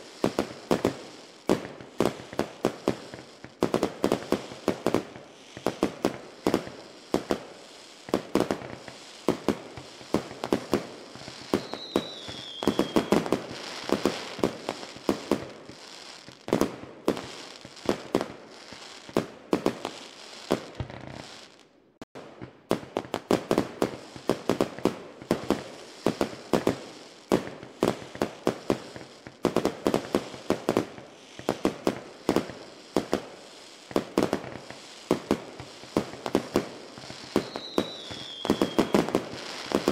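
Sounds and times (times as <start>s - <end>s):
fireworks and firecrackers banging: 0.0s - 39.9s
falling whistle: 11.6s - 13.1s.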